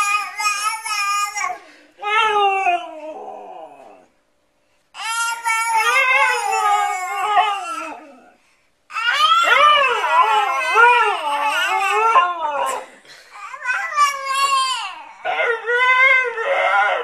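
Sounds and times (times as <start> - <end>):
dog howling: 5.5 - 8.4, 9.0 - 12.8, 15.2 - 17.0.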